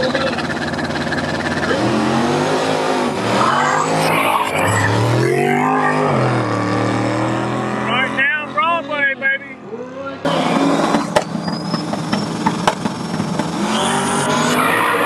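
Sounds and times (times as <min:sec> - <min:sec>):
race car engine accelerating: 0:00.0 - 0:08.9, 0:09.6 - 0:15.0.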